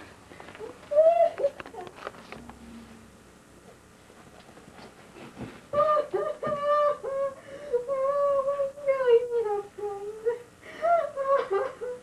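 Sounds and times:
high voice singing wordless melody: 5.8 - 10.5.

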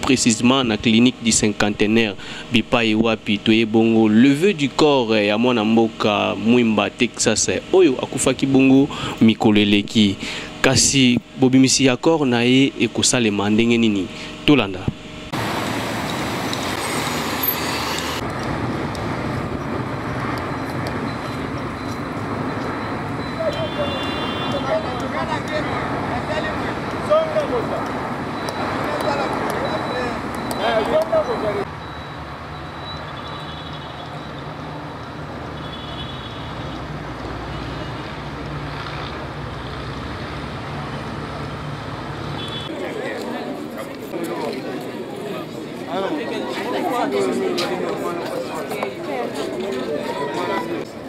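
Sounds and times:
road traffic din: 0.0 - 51.0.

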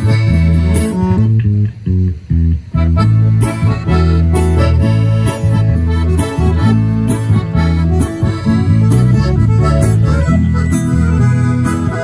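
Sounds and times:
accordion chords and melody: 0.0 - 12.0
bass guitar line: 0.0 - 12.0
strummed acoustic guitar: 2.8 - 12.0.

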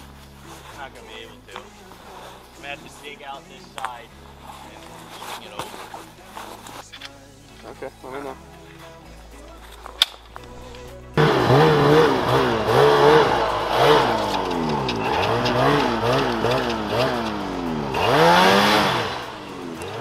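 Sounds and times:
snowmobile engine revving: 10.8 - 20.0.

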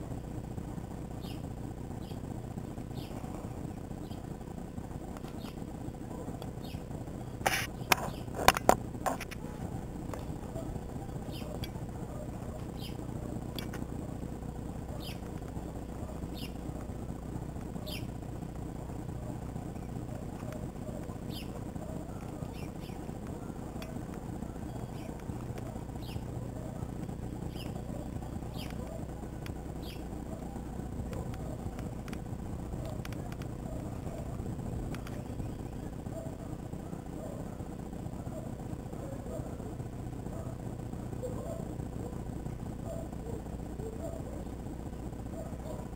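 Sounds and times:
low background rumble: 0.0 - 45.9
bird chirping: 1.1 - 2.3, 2.9 - 3.3, 3.9 - 4.3, 5.2 - 5.6, 6.2 - 8.4, 9.6 - 13.7, 14.8 - 16.8, 17.8 - 18.2, 19.8 - 29.2, 29.8 - 31.8, 32.8 - 36.4.

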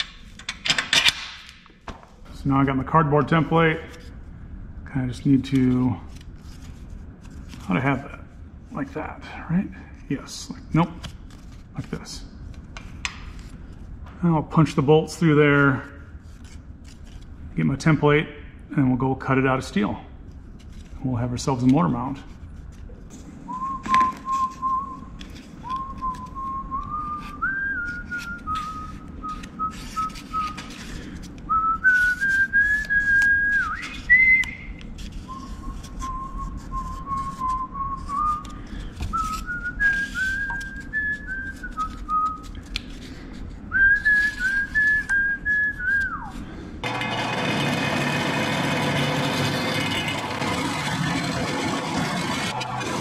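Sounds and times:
person whistling a tune: 23.5 - 30.6, 31.5 - 34.7, 35.3 - 38.5, 39.1 - 42.5, 43.7 - 46.4
steady machine noise: 46.8 - 53.0.

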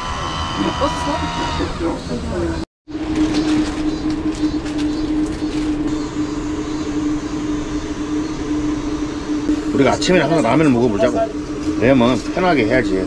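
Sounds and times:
gas stove burning: 2.9 - 13.0.

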